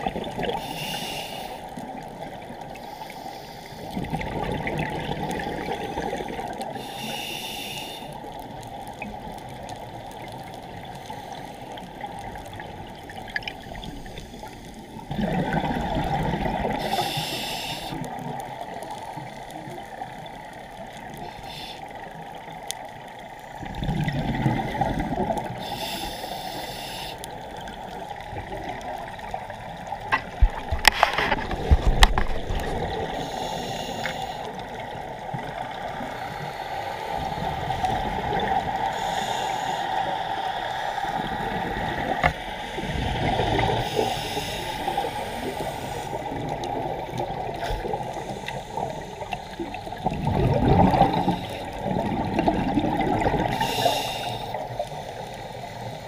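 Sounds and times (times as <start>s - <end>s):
gurgling exhaled bubbles: 0.0s - 0.7s, 3.9s - 6.8s, 12.0s - 17.0s, 23.6s - 25.6s, 27.6s - 33.4s, 41.1s - 54.0s
diver breathing through regulator: 0.5s - 1.8s, 5.7s - 8.2s, 16.7s - 18.1s, 21.2s - 22.0s, 25.4s - 27.4s, 30.8s - 34.7s, 38.7s - 40.9s, 42.2s - 46.7s, 47.5s - 51.9s, 53.4s - 56.0s.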